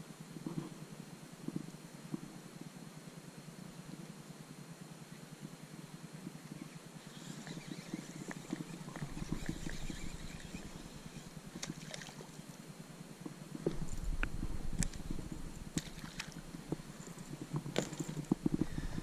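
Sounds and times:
fishing reel ticking: 7.0 - 11.8, 14.7 - 19.0
water splashing at kayak bow: 11.6 - 12.4, 15.7 - 16.5.

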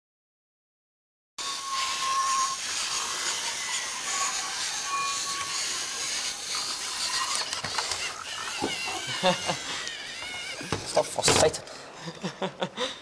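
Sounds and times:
whirring rattle of plastic gears: 2.5 - 11.6.

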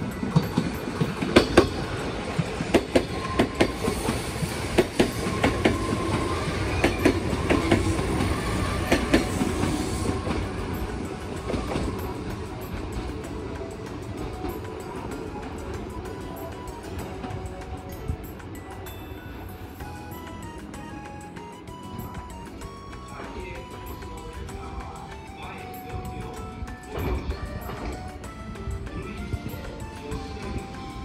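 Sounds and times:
train wheels clattering over rail joints: 0.1 - 16.9.

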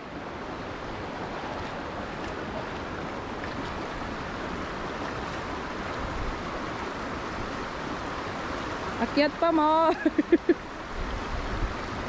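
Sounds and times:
river flowing over stones: 0.0 - 12.0.

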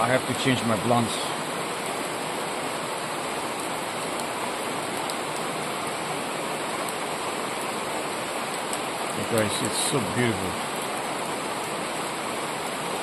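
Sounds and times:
rain on leaves and grass: 0.0 - 13.0.

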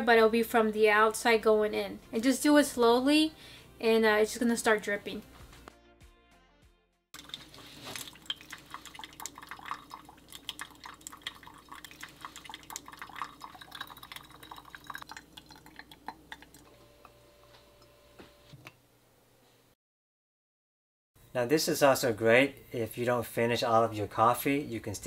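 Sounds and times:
coffee dripping into carafe: 7.2 - 16.8.

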